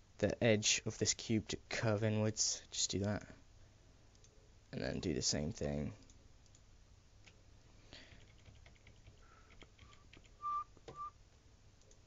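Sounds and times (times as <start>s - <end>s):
computer mouse clicks: 4.1s - 4.4s
soft whistled notes: 10.4s - 11.2s.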